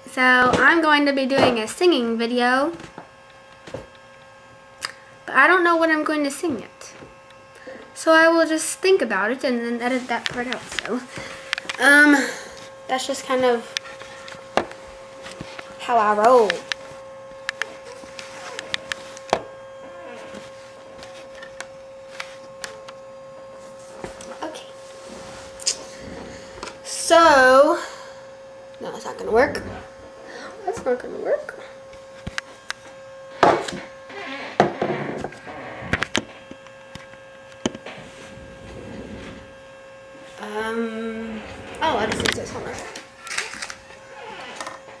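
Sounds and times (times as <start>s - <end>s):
high electronic hum: 0.0s - 45.0s
microphone handling noise: 29.2s - 30.2s, 37.7s - 39.6s, 41.2s - 43.2s.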